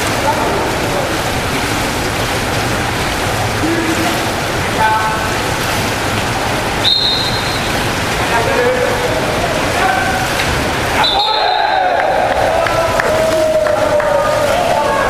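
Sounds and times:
water splashing: 0.0 - 15.0
shrill referee whistle: 6.8 - 7.8, 11.0 - 11.9
people shouting: 10.9 - 15.0.

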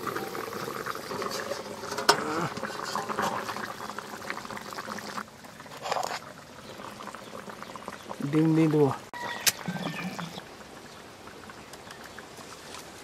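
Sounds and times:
curry bubbling in a pot: 0.0 - 13.0
lid lifted off pot: 1.1 - 3.6.

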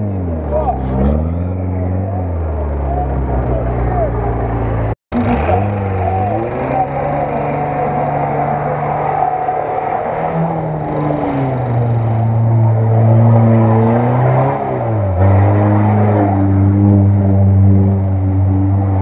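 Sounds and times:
car engine revving hard: 0.0 - 19.0.

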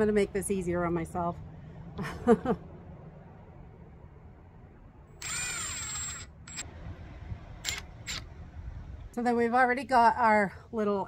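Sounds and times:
cordless drill motor whine: 5.2 - 6.6, 7.6 - 8.3
drill trigger blips: 5.2 - 6.6.

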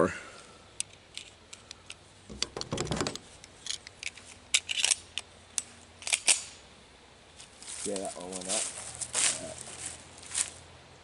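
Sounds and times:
pistol magazine clicks and rattles: 3.6 - 6.5.

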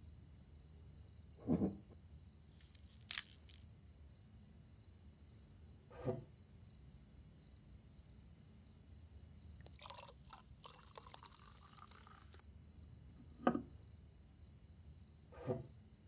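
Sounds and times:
crickets chirring: 2.2 - 4.6, 8.9 - 14.0
liquor poured into glass: 9.6 - 12.4
glass set down on table: 13.4 - 13.7.

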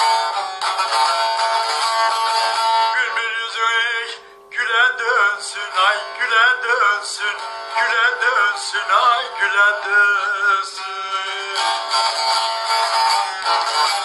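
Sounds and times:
instrumental accompaniment: 0.0 - 4.4, 7.2 - 14.0
man singing folk song: 2.6 - 14.0.

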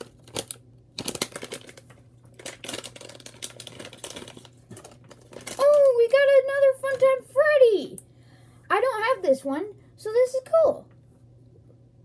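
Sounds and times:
foil packaging crinkling: 0.0 - 7.1.

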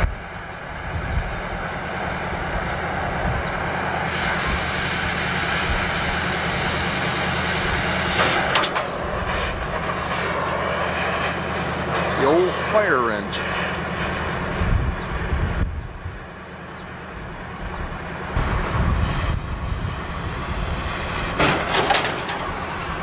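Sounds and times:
cutting torch hissing: 3.8 - 14.3, 18.4 - 23.0.

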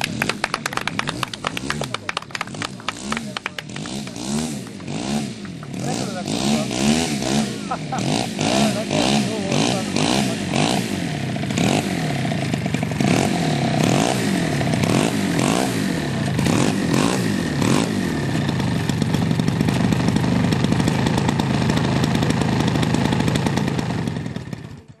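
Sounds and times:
model airplane engine running: 9.1 - 25.0.

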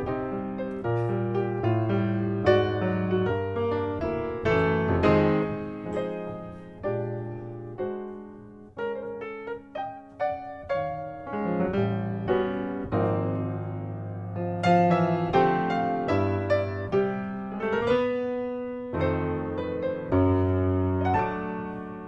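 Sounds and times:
grand piano jazz ballad: 0.0 - 22.0.

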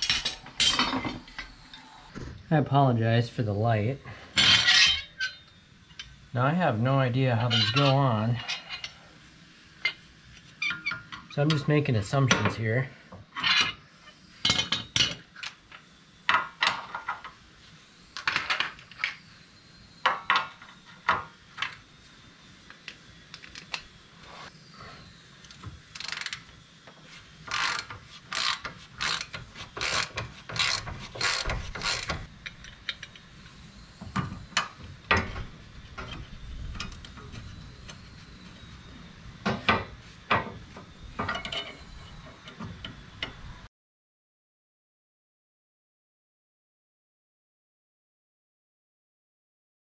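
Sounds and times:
metal parts clicking and clanking: 0.0 - 1.9, 4.3 - 5.4, 27.5 - 33.3, 41.2 - 43.4.

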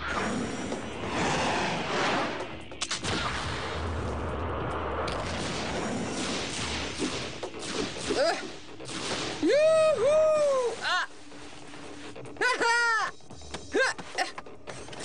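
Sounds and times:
sharp shot-like cracks: 1.9 - 9.6.

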